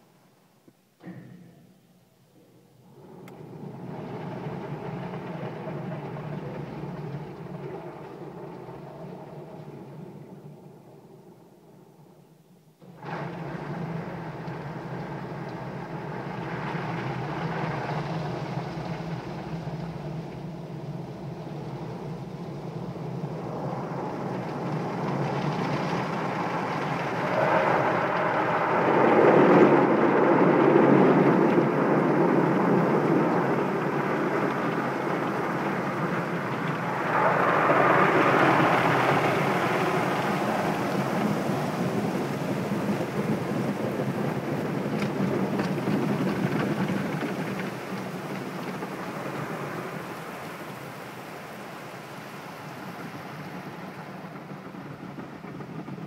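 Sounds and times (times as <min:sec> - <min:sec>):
water spray on car: 0:30.8 - 0:54.4.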